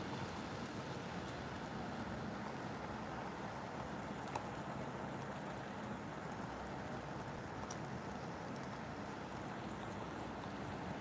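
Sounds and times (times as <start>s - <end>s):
steady rain hiss: 0.0s - 11.0s
raindrop ticks: 3.6s - 10.6s.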